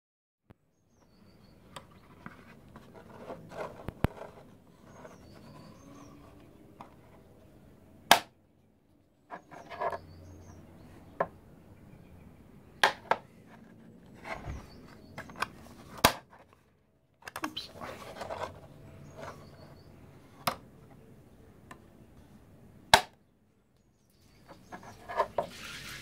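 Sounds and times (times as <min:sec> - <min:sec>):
plastic catches snapping: 0:08.1 - 0:08.3.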